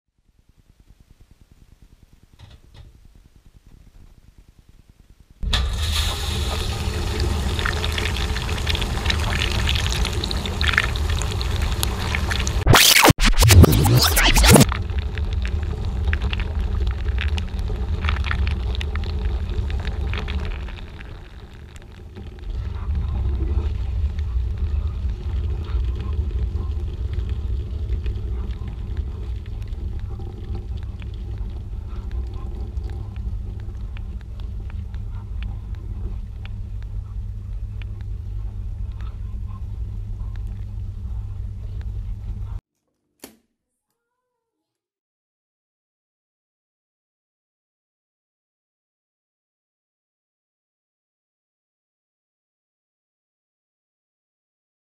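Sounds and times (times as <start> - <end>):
dishwasher running: 5.4 - 12.6.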